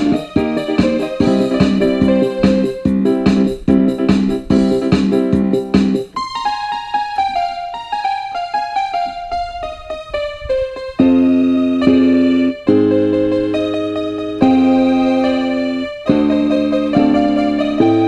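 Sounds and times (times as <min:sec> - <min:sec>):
driving electronic beat: 0:00.0 - 0:06.2
keyboard chords: 0:00.0 - 0:18.0.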